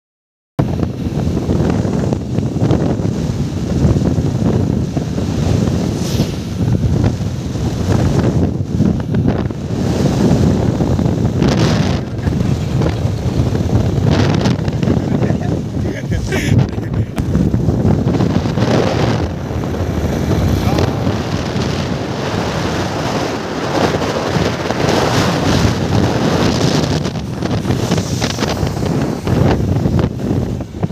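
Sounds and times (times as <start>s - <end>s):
wind buffeting microphone: 0.6s - 30.9s
motorbike running: 6.6s - 30.9s.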